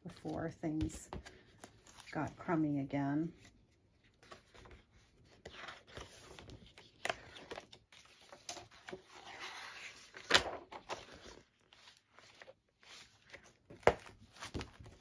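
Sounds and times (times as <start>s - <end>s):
paper pages rustling and flapping: 3.4s - 15.0s.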